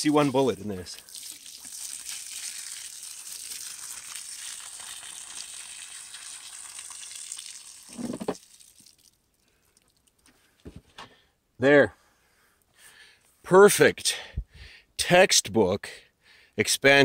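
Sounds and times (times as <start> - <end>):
water pouring and splashing: 0.0 - 10.3.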